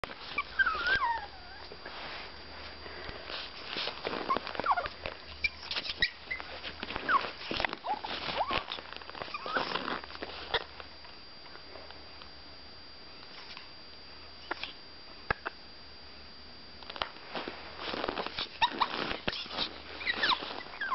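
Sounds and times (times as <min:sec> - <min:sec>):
dog whining: 0:00.2 - 0:01.7, 0:04.0 - 0:10.7, 0:18.3 - 0:20.9
clicks and scuffs: 0:01.6 - 0:10.9.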